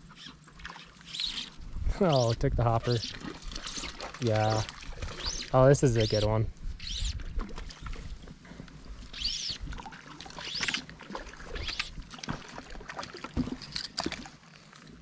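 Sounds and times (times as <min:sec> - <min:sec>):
fly line hissing swishes: 0:03.4 - 0:04.1.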